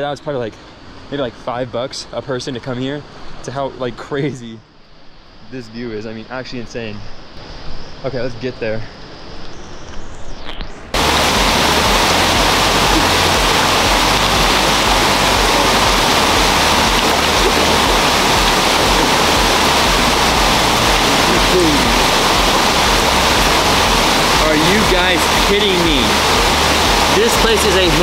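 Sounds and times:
waterfall rushing: 11.0 - 28.0.

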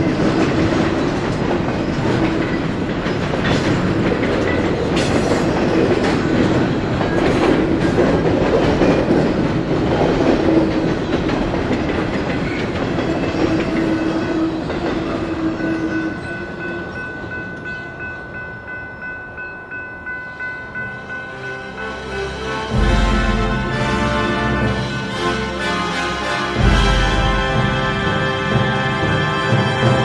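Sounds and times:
freight train wheels clacking: 0.0 - 30.0
crossing bell ringing: 13.1 - 30.0.

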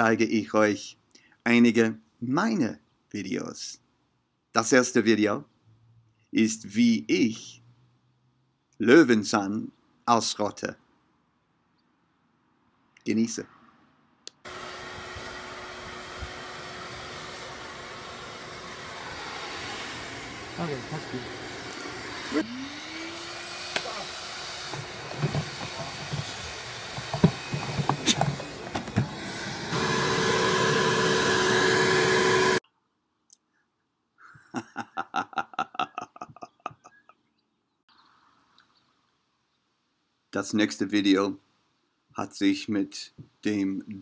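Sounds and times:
vacuum cleaner running: 14.5 - 32.6
man laughing: 34.2 - 37.2.

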